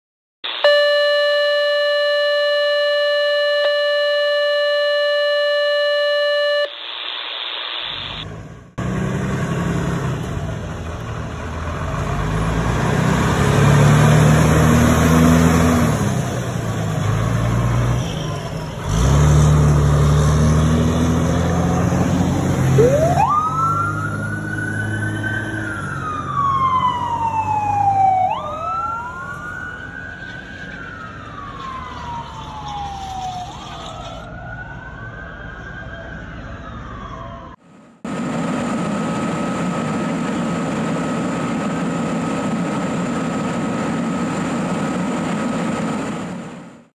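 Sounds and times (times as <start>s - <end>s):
electronic siren wailing: 0.4s - 8.3s, 22.6s - 37.6s
siren steady tone: 0.4s - 8.3s, 21.6s - 37.6s
fire engine rumble: 8.2s - 46.9s.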